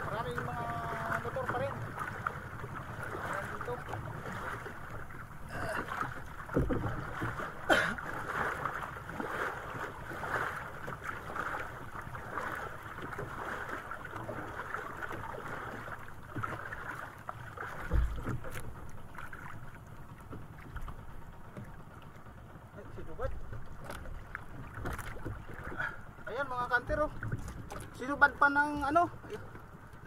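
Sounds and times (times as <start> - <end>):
water lapping against boat hull: 0.0 - 30.0
knocks against boat: 5.8 - 8.8, 15.1 - 16.6, 17.6 - 18.9, 23.2 - 25.8.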